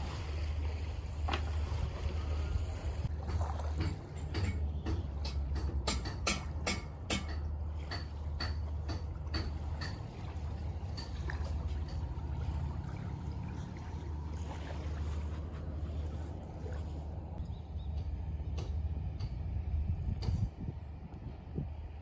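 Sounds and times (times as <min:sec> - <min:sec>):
wind rumble on microphone: 0:00.0 - 0:06.2, 0:09.0 - 0:22.0
sharp knocks: 0:03.2 - 0:10.0.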